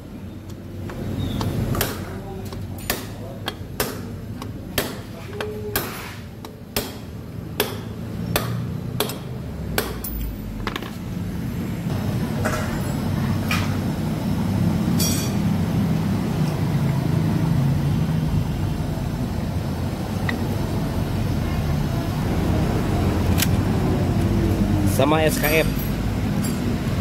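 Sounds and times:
hammer striking steel: 0:06.8 - 0:10.3, 0:15.0 - 0:15.4.

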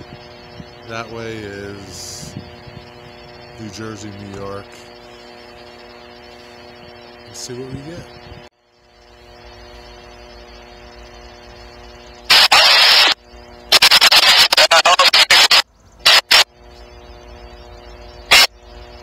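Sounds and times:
wind buffeting microphone: 0:00.0 - 0:00.9, 0:01.8 - 0:03.6
steady low hum: 0:00.0 - 0:19.0.

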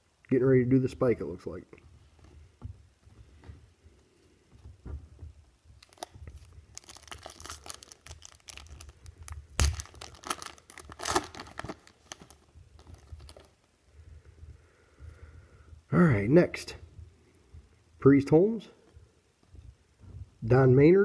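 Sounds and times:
wrapper tearing and crinkling: 0:05.8 - 0:13.6.

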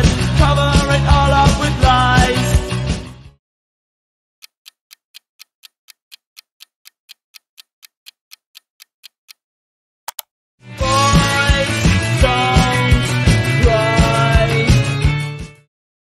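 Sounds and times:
clock ticking: 0:04.4 - 0:09.4
quick clicks: 0:10.1 - 0:10.3.

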